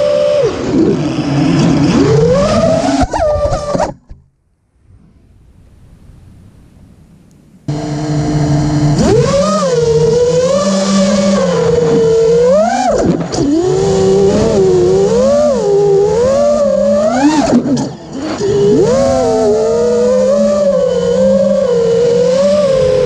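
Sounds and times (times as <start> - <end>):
quadcopter motors whining: 2.0 - 3.9, 7.7 - 23.0.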